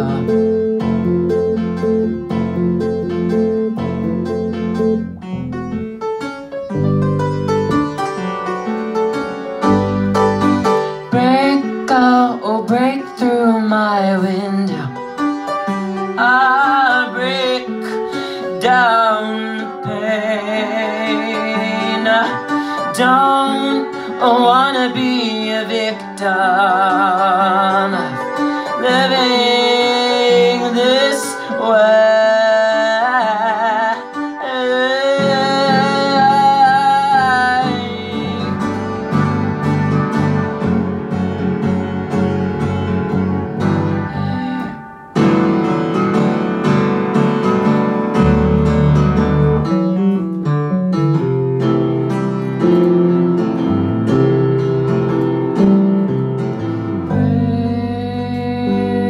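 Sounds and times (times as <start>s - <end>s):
person singing with vibrato: 0.0s - 2.8s, 10.6s - 41.0s, 43.5s - 45.8s, 56.6s - 59.0s
electric bass: 0.0s - 6.0s, 6.7s - 8.4s, 9.6s - 10.8s, 37.3s - 46.9s, 47.5s - 59.0s
piano: 0.0s - 59.0s.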